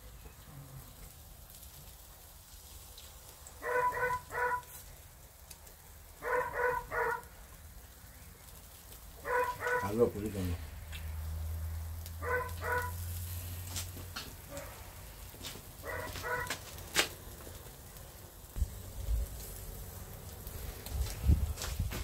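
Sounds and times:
dog barking: 0:03.6 - 0:04.7, 0:06.2 - 0:07.3, 0:09.2 - 0:10.0, 0:12.2 - 0:13.0, 0:14.5 - 0:14.8, 0:15.8 - 0:16.6.

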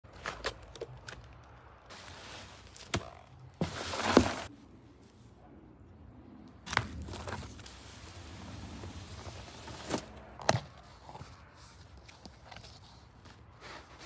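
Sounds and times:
cardboard scraping: 0:01.9 - 0:04.5
cardboard rustling: 0:01.9 - 0:04.6, 0:06.7 - 0:14.0
box thump: 0:03.6 - 0:04.5.

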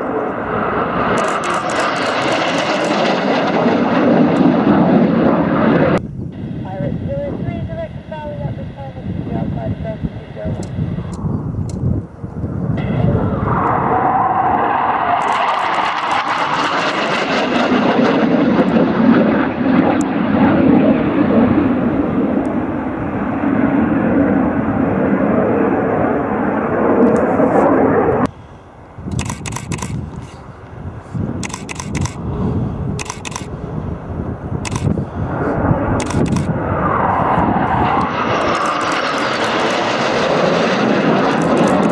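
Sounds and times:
distant jet rumble: 0:00.0 - 0:41.9
jet roaring past low: 0:00.0 - 0:41.9
short crackles: 0:15.2 - 0:17.3.

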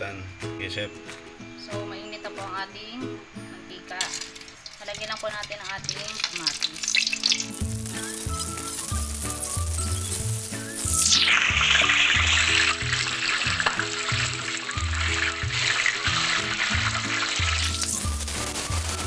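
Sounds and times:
oil sizzling in a wok: 0:03.8 - 0:19.0
metal spatula in wok: 0:06.1 - 0:19.0.

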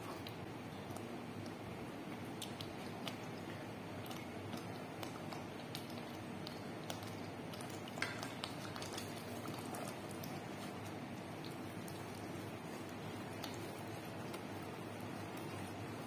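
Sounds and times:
thick sauce bubbling and popping: 0:00.0 - 0:16.0.

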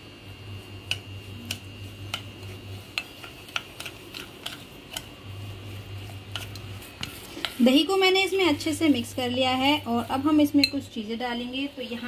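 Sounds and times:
metal spoon clinking glass bowl: 0:10.6 - 0:10.8.

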